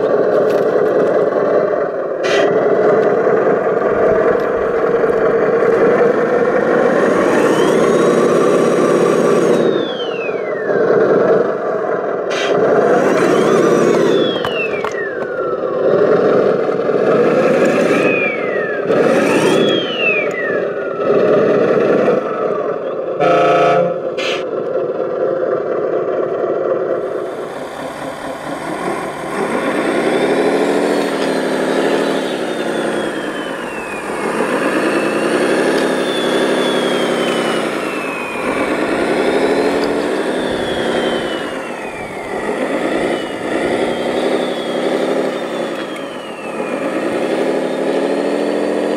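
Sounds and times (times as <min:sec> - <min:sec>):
model truck drive running: 0:00.0 - 0:48.9
model wheel loader engine sound: 0:00.0 - 0:48.9
high whines falling in pitch: 0:03.3 - 0:11.0, 0:12.9 - 0:15.8, 0:17.5 - 0:24.4, 0:27.1 - 0:48.0.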